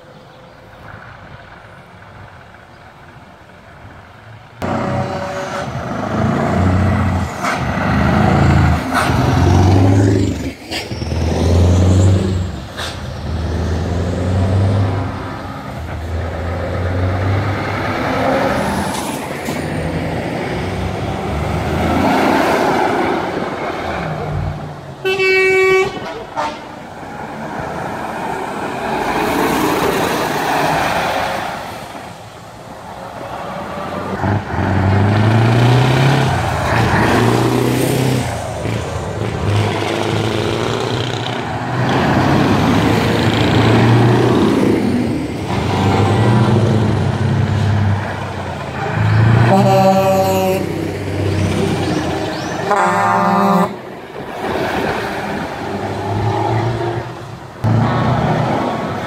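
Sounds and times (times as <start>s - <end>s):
truck diesel engines accelerating: 0.0s - 59.0s
air horn blast: 4.6s - 5.8s, 25.0s - 26.8s, 49.4s - 50.8s, 52.6s - 53.8s.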